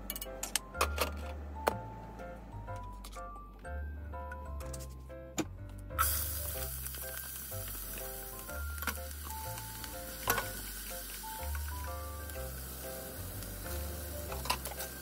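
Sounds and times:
background music with bass line: 0:01.2 - 0:15.0
food sizzling in a pot: 0:06.0 - 0:15.0.

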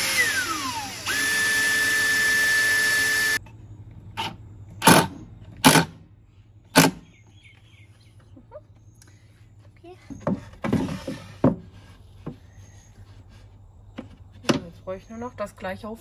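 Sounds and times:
drill whining into plywood: 0:00.0 - 0:03.4.

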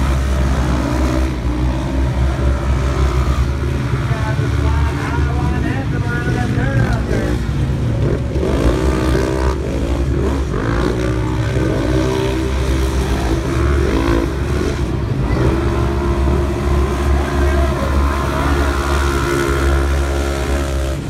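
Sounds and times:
low steady rumble: 0:00.0 - 0:21.0
race engines revving: 0:00.0 - 0:21.0.

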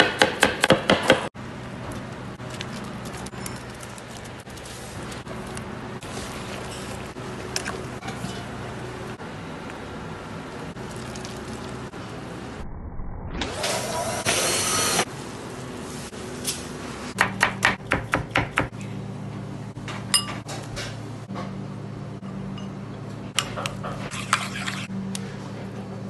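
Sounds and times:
low hum: 0:01.4 - 0:14.0.

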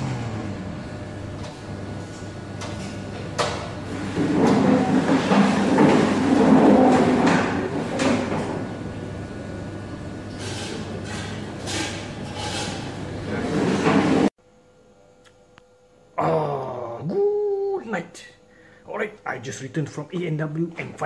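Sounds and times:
equipment hum: 0:00.0 - 0:21.0
kitchen clatter: 0:02.6 - 0:08.7, 0:10.3 - 0:14.3.

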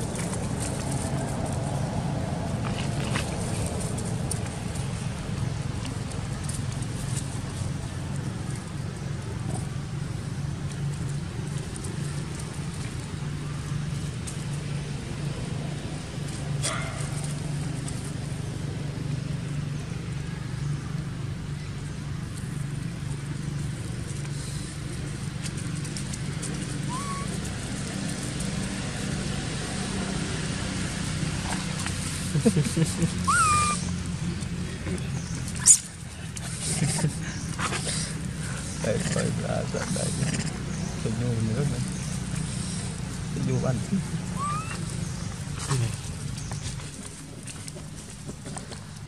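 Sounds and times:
short high calls: 0:26.9 - 0:27.4, 0:33.3 - 0:33.9, 0:44.2 - 0:44.9.

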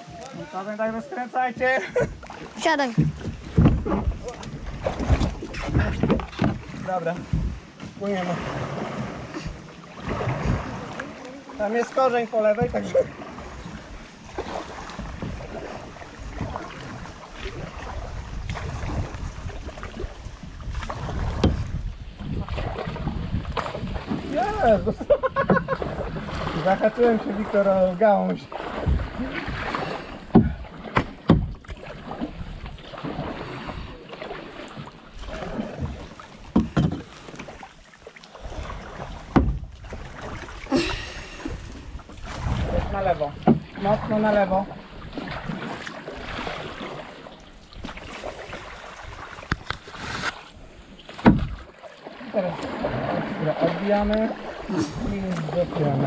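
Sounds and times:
paddles splashing in water: 0:00.0 - 0:56.0
sharp knocks on boat: 0:02.8 - 0:08.0, 0:20.7 - 0:21.8, 0:28.3 - 0:31.9, 0:35.7 - 0:37.6, 0:39.1 - 0:39.8, 0:43.3 - 0:43.8, 0:51.1 - 0:51.7
wind rumble on microphone: 0:03.0 - 0:11.1, 0:12.6 - 0:27.5, 0:28.6 - 0:34.0, 0:38.4 - 0:45.6.

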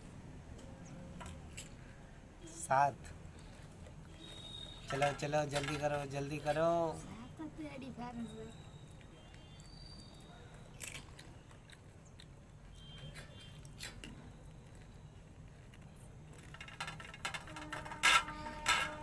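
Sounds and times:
clicks and taps on steel plates: 0:04.2 - 0:06.2, 0:16.4 - 0:19.0
puris cracking: 0:08.7 - 0:19.0.

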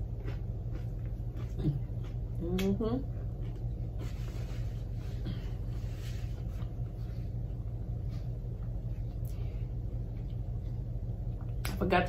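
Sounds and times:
chewing: 0:00.0 - 0:03.9
steady low hum: 0:00.0 - 0:12.0.

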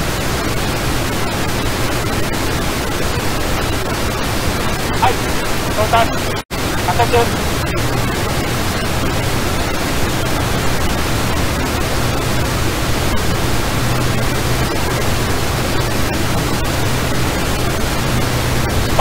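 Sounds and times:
jet engine afterburner roaring: 0:00.3 - 0:19.0
low hum: 0:01.9 - 0:19.0.

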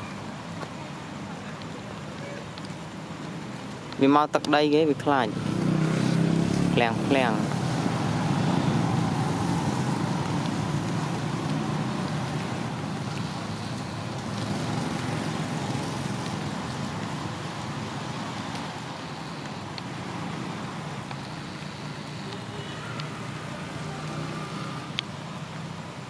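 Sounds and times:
faint clicks: 0:01.5 - 0:04.6.

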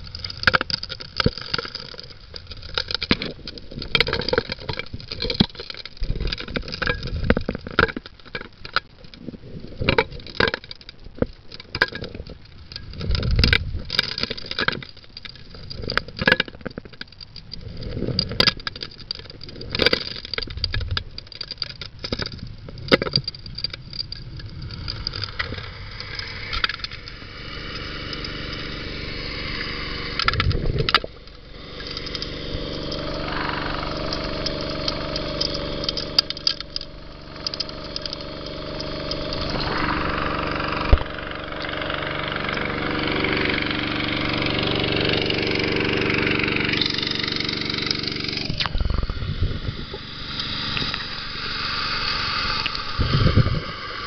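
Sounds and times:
gravel clattering in suction nozzle: 0:00.0 - 0:54.0
engine and pump droning: 0:24.7 - 0:54.0.

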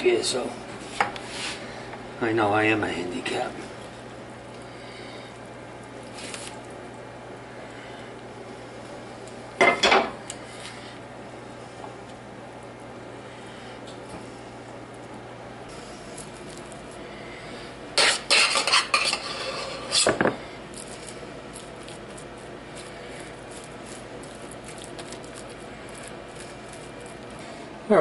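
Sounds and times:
spoon scraping a saucepan: 0:18.0 - 0:20.1.

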